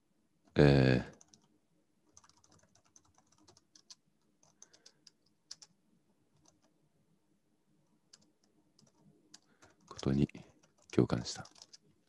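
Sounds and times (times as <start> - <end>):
typing on computer keyboard: 1.1 - 1.5, 2.1 - 5.8, 6.4 - 6.7, 8.1 - 12.0.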